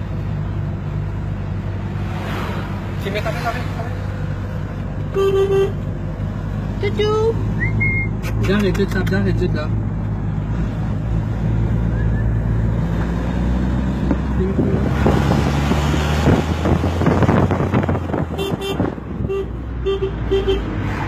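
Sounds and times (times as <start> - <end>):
car horn toots: 5.1 - 5.8, 18.3 - 20.7
wind rushing past open window: 12.6 - 19.2.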